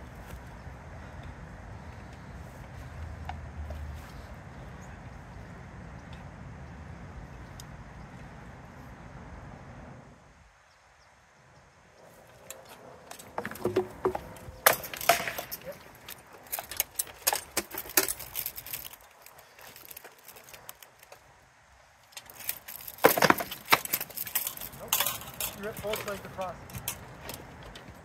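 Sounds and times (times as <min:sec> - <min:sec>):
armour plates rattling: 0:12.2 - 0:21.1, 0:22.1 - 0:28.0
blades striking shields and armour: 0:13.2 - 0:16.0.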